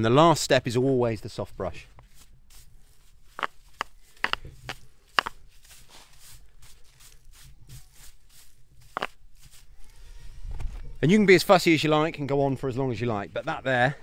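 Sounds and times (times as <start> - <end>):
brush swishing over mortar: 2.0 - 10.2.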